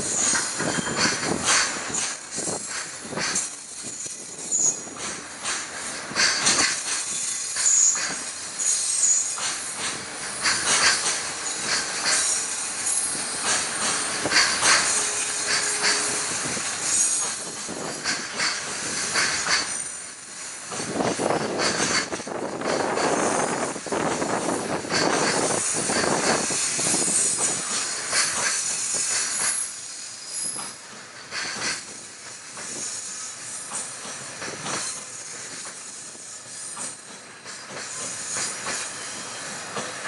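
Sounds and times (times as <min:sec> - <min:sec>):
train wheels clattering over rail joints: 0:00.0 - 0:40.0
high-pitched wheel squeal: 0:14.7 - 0:18.0.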